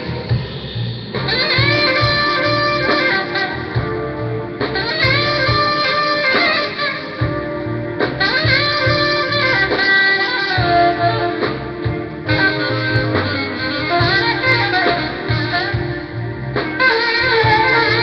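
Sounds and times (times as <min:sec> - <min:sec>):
smooth jazz band playing: 0:00.0 - 0:18.0.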